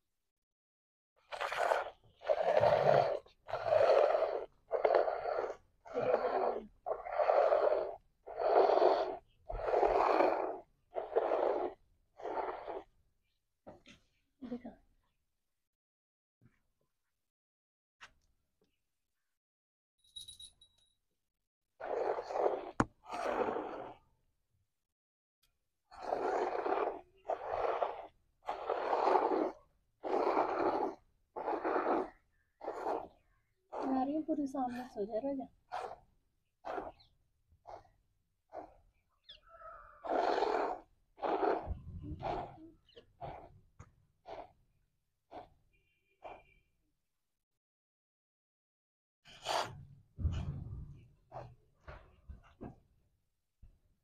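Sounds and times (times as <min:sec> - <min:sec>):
milk squirting: 0:25.9 - 0:35.0, 0:35.7 - 0:37.1.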